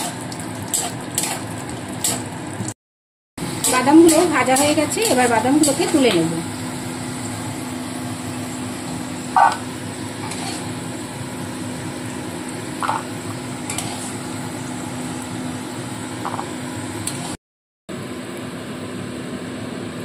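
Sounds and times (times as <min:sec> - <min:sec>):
low sizzle and hum: 0:00.0 - 0:02.8, 0:03.4 - 0:20.0
metal spatula scraping and clinking: 0:10.2 - 0:10.7.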